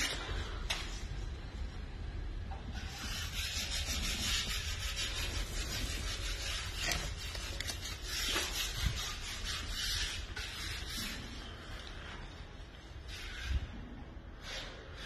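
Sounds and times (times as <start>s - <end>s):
masking tape peeling off wall: 2.8s - 11.2s.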